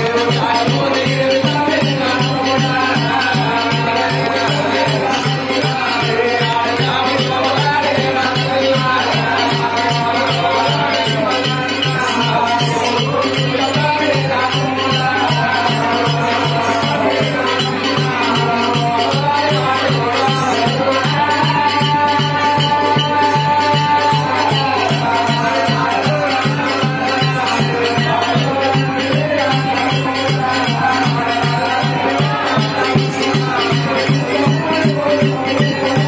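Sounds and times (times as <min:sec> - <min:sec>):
ballad singing over loudspeakers: 0:00.0 - 0:36.0
drum beating steadily: 0:00.0 - 0:36.0.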